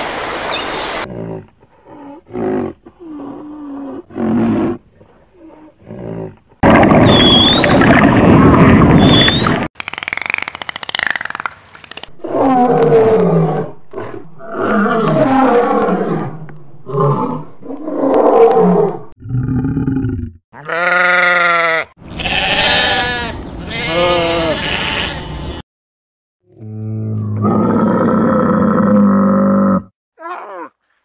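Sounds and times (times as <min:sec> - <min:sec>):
animal bleating calls: 0:20.6 - 0:25.4.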